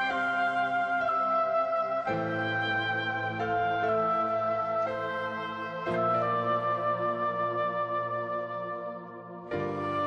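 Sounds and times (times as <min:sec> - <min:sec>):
flute-like melody over sustained chords: 0:00.0 - 0:10.0.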